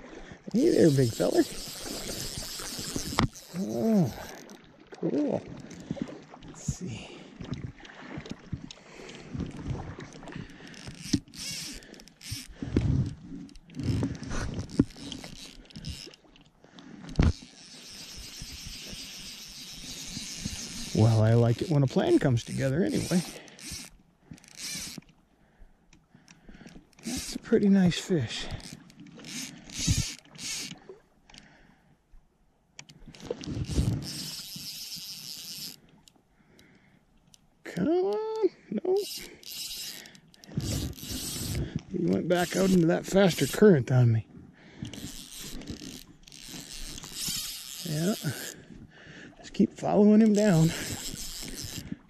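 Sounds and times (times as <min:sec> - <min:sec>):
knocks and rustles handling rod: 0:00.5 - 0:03.6, 0:07.4 - 0:25.2, 0:25.9 - 0:31.5, 0:32.8 - 0:37.5, 0:39.0 - 0:43.7, 0:44.8 - 0:48.9, 0:50.2 - 0:52.0
fishing reel click drag ratcheting: 0:00.5 - 0:04.6, 0:10.5 - 0:25.2, 0:25.9 - 0:31.5, 0:32.8 - 0:37.5, 0:39.0 - 0:43.7, 0:44.8 - 0:48.7, 0:50.2 - 0:52.0.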